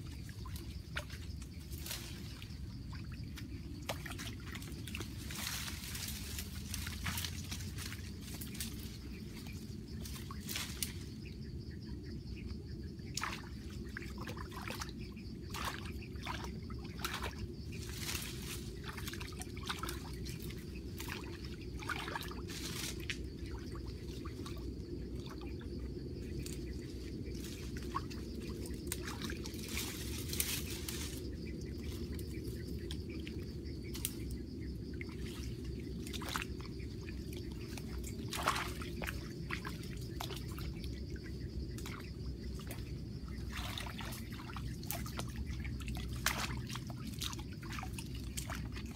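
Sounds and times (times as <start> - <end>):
water splashing in stream: 0.2 - 9.0, 13.1 - 25.5, 27.4 - 31.2, 35.0 - 41.0, 41.7 - 48.9
branches rustling: 0.5 - 2.9, 4.6 - 11.2, 17.7 - 18.9, 22.4 - 23.2, 26.2 - 32.6.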